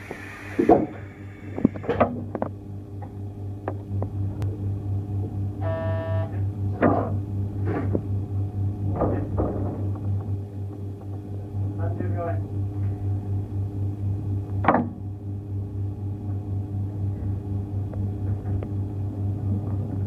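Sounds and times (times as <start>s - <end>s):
throbbing low equipment hum: 0.0s - 20.0s
short buzzer tone: 5.6s - 6.4s.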